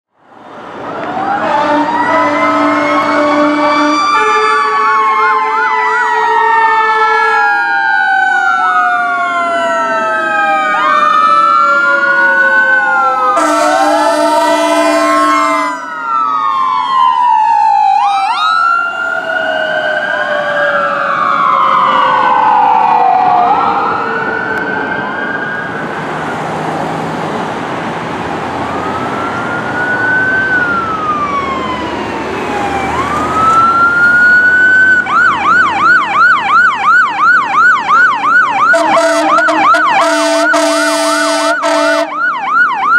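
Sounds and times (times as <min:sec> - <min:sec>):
emergency sirens wailing: 0:00.2 - 0:42.9
air horn blasts: 0:01.4 - 0:04.4, 0:13.3 - 0:15.9, 0:38.7 - 0:42.2.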